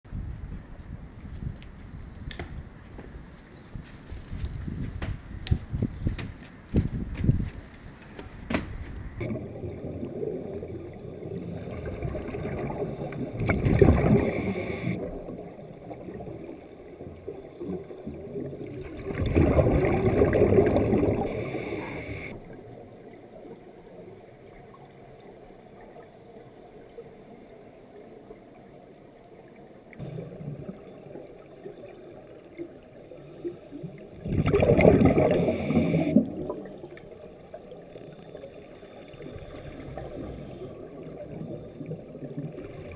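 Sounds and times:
low underwater rumble: 9.0s - 27.5s
regulator bubbles gurgling: 9.2s - 26.1s, 29.9s - 42.9s.

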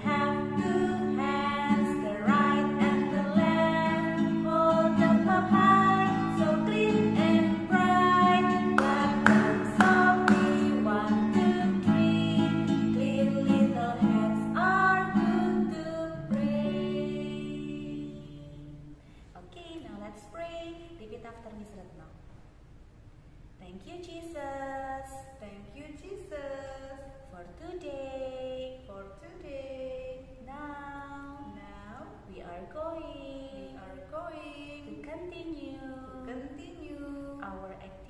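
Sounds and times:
strummed acoustic guitar: 0.0s - 18.1s
women singing: 0.0s - 18.9s, 27.9s - 38.0s.

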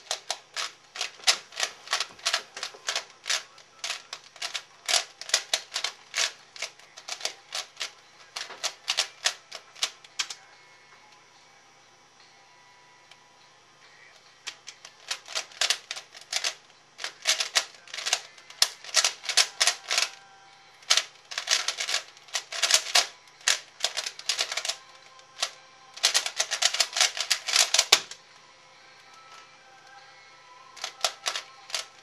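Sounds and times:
puzzle cube plastic clicking: 0.0s - 10.4s, 14.4s - 20.2s, 20.8s - 28.2s, 30.8s - 32.0s.

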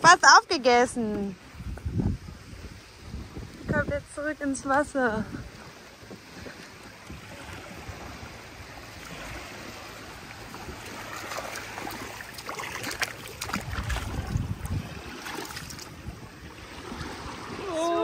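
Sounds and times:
sea water lapping at shoreline: 0.0s - 18.0s
wind gusts on microphone: 0.0s - 18.0s.

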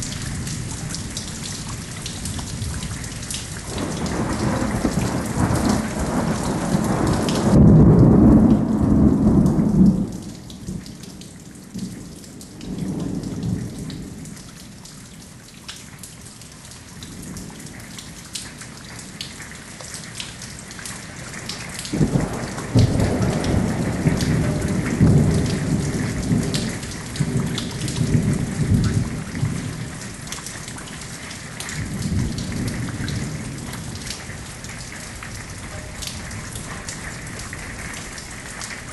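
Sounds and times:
rolling thunder: 0.0s - 10.8s, 21.8s - 30.3s, 31.7s - 38.3s
raindrops ticking close by: 0.0s - 38.9s
steady rain: 0.0s - 38.9s.

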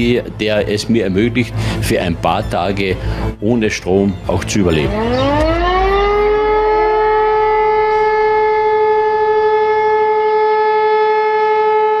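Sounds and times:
warning siren: 4.6s - 12.0s.

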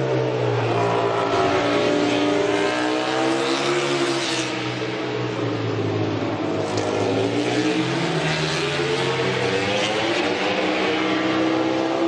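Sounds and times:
racing motorcycle engine revving: 0.0s - 5.1s.

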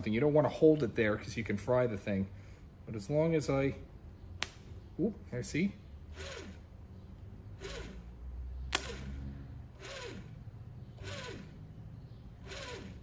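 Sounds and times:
generator motor humming: 6.0s - 13.0s.

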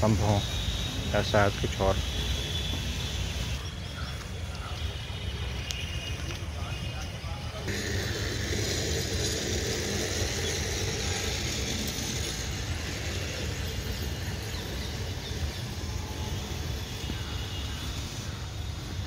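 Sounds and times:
steady hiss: 7.7s - 19.0s.

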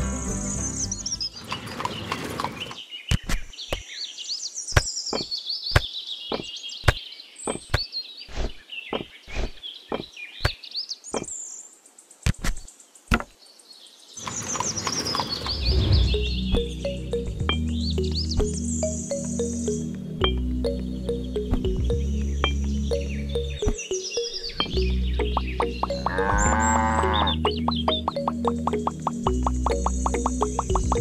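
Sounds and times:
music: 0.0s - 1.6s, 15.7s - 31.0s
birds chirping: 0.0s - 31.0s.

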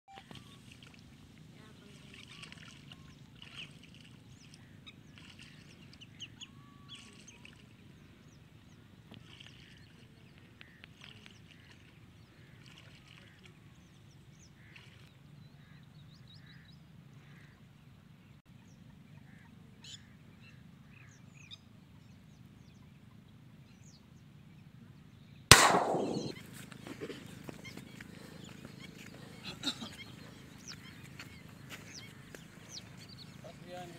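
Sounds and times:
shotgun shot with echo: 25.5s - 26.4s.

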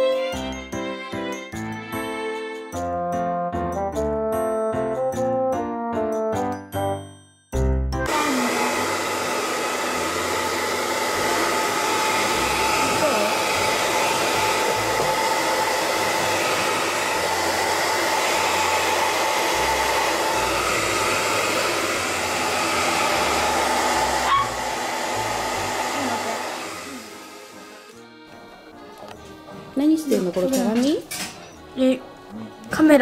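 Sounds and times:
hair dryer running: 8.0s - 28.1s.

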